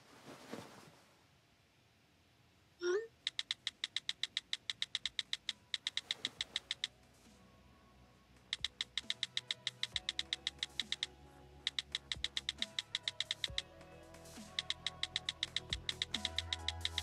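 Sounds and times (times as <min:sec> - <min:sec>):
rapid sharp clicks: 0:03.2 - 0:06.9, 0:08.4 - 0:11.1, 0:11.7 - 0:13.7, 0:14.4 - 0:17.0.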